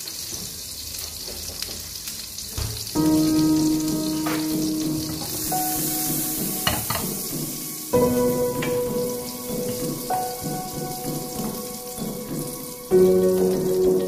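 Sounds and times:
butter sizzling in a frying pan: 0.0s - 14.0s
background music of held notes: 3.0s - 14.0s.

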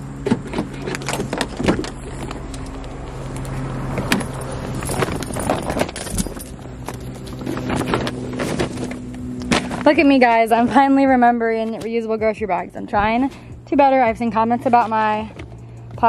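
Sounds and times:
steady low hum: 0.0s - 16.0s
car door opening: 0.2s - 9.8s
shopping bags rustling: 0.4s - 12.3s
keys jangling: 4.1s - 8.0s.

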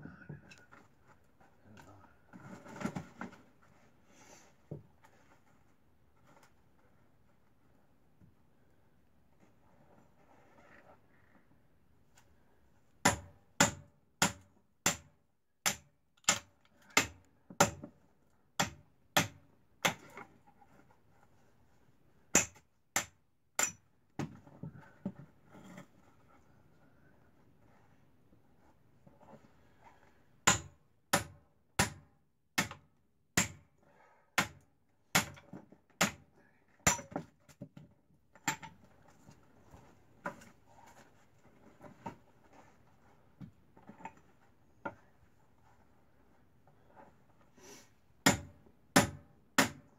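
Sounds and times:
hammer striking hatchet: 13.0s - 17.8s, 18.6s - 20.1s, 22.3s - 24.3s, 30.4s - 32.0s, 32.6s - 32.8s, 33.4s - 33.6s, 34.4s - 35.4s, 36.0s - 36.2s, 36.8s - 37.3s, 48.2s - 49.9s.

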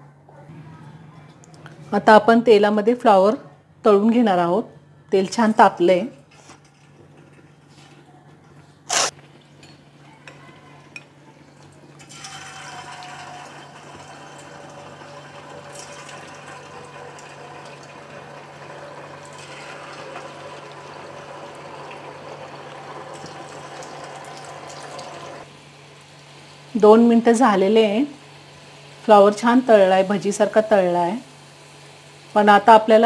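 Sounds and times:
food deep-frying in oil: 12.0s - 33.0s.

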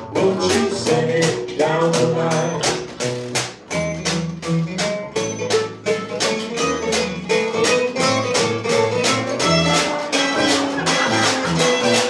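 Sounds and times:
upright bass: 0.0s - 12.0s
bowed fiddle: 5.2s - 12.0s.

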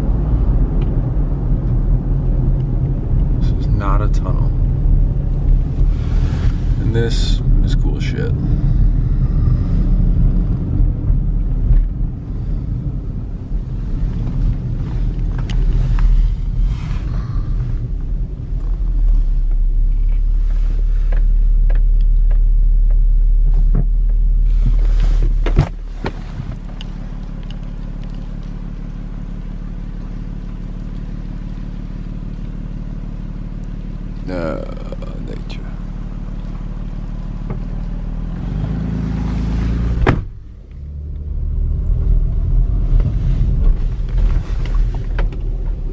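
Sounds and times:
car engine and road rumble: 0.0s - 45.9s
knocks inside car cabin: 40.0s - 40.4s.

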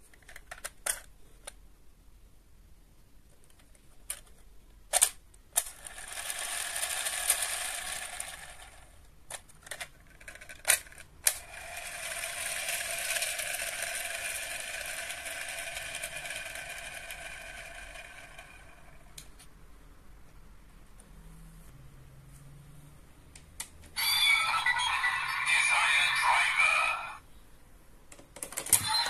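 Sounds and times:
toy spinner clicks: 5.6s - 8.9s, 10.6s - 19.1s
toy spinner whirring: 5.6s - 9.0s, 10.3s - 19.2s, 24.0s - 27.2s, 28.7s - 29.0s.

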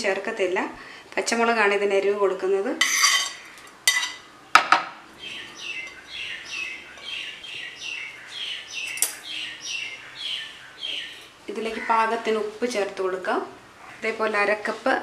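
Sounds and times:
spoon clinking on plate: 2.8s - 4.2s
bird chirping: 5.2s - 12.2s.

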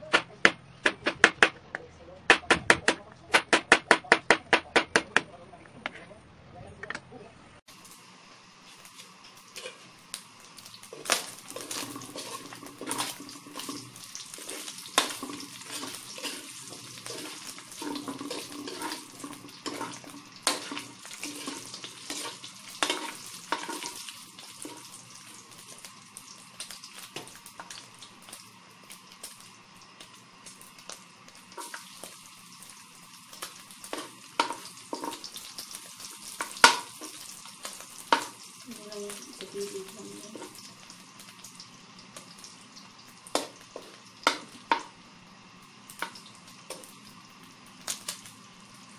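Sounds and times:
meat sizzling in hot oil: 7.7s - 48.9s
metal spatula scraping wok: 8.9s - 9.9s, 10.9s - 25.0s.

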